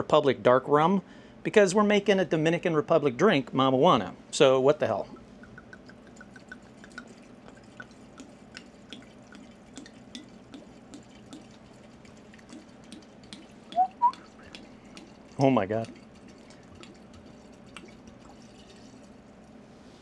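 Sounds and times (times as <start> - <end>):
liquid pouring into a glass jar: 5.1 - 19.6.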